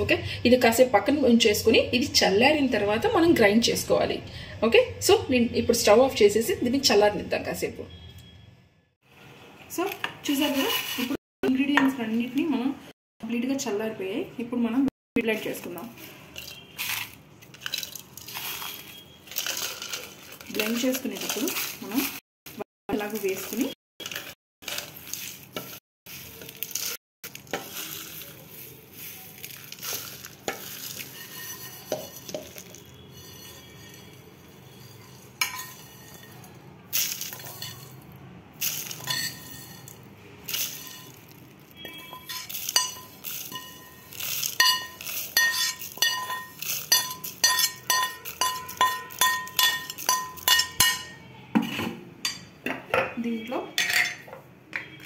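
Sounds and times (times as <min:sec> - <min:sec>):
spices rattling in steel pan: 0:16.4 - 0:51.2.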